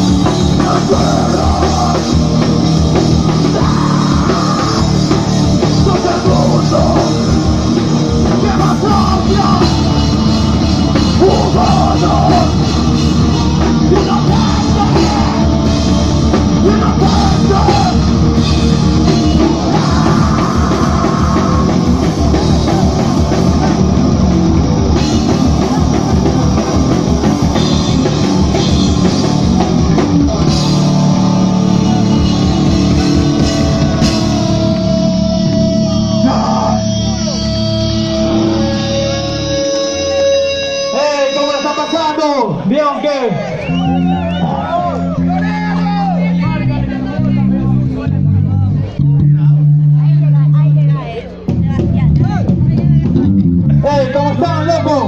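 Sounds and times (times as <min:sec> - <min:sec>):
drum kit: 0:00.0 - 0:42.2, 0:49.0 - 0:55.0
distorted electric bass: 0:00.0 - 0:42.4, 0:43.6 - 0:55.0
distorted electric guitar: 0:00.0 - 0:42.7, 0:43.4 - 0:55.0
shouted vocals: 0:00.3 - 0:24.1, 0:28.1 - 0:37.4, 0:40.9 - 0:46.6.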